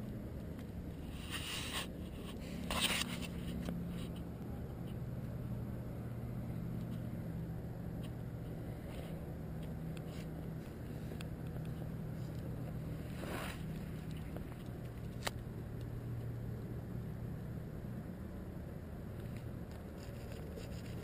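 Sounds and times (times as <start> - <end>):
steady low hum: 0.0 - 21.0
puppy rubbing against camera: 1.1 - 4.2, 19.9 - 21.0.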